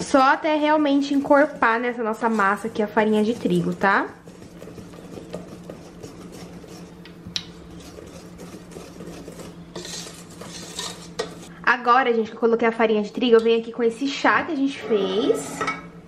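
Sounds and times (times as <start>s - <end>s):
whisk scraping bowl: 0.0s - 11.5s
whisk clicking against metal bowl: 2.4s - 11.5s.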